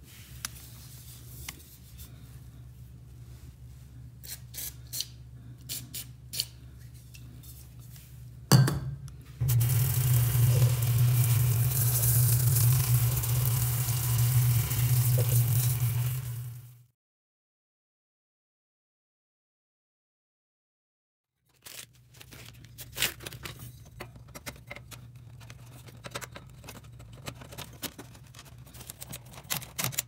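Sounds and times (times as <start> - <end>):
low hum: 9.4 - 16.9
water spraying on metal grid: 9.4 - 16.9.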